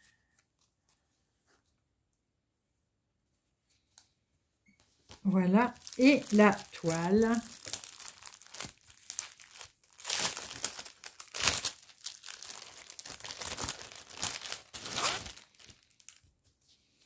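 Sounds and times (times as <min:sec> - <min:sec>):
plastic packaging crinkling: 0:05.2 - 0:16.3.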